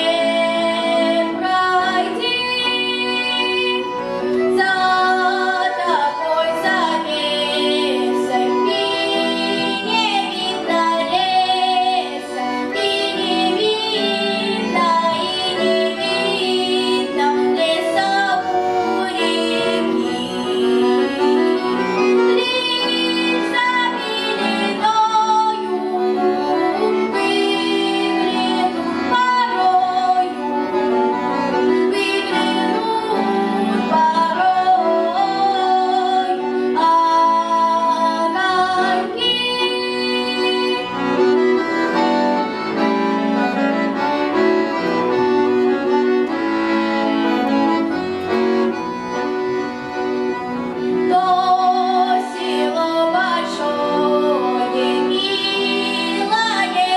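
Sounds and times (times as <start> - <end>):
button accordion: 0.0 - 56.9.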